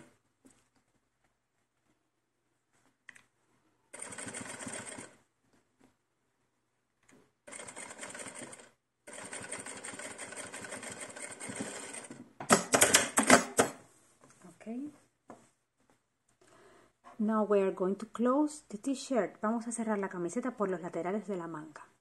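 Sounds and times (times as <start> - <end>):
sewing machine stitching: 3.9 - 5.2, 7.5 - 13.8
sewing machine clatter: 4.0 - 5.2, 7.5 - 13.7.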